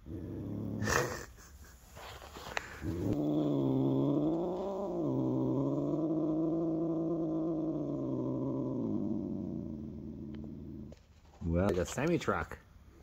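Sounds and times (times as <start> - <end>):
cat purring: 0.0 - 11.2
rustle of handling: 1.8 - 3.0.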